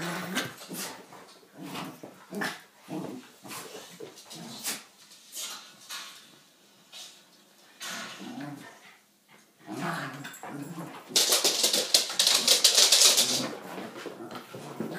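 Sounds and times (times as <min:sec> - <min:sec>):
dog paws scrabbling on wooden floor: 0:10.2 - 0:14.9.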